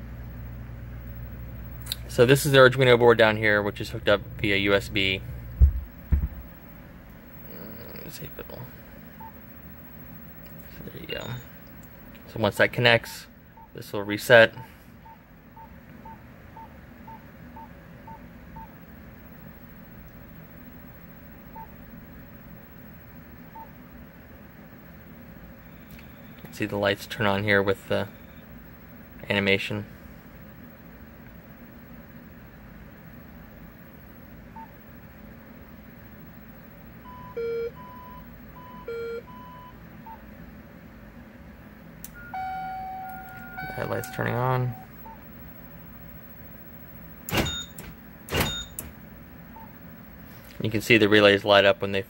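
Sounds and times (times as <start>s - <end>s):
steady low hum: 0.0s - 52.0s
short electronic beeps: 42.1s - 45.2s, 48.4s - 48.8s.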